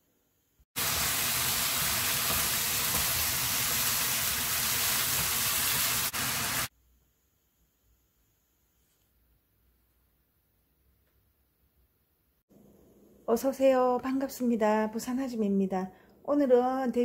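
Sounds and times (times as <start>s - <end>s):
food sizzling in a wok: 0.8s - 6.7s.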